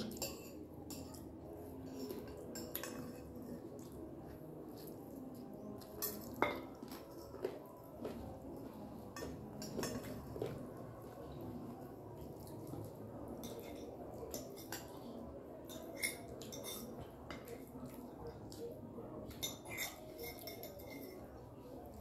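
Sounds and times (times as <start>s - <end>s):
forks clinking on plates: 0.0s - 4.0s, 5.7s - 7.5s, 9.1s - 10.7s, 13.4s - 21.4s.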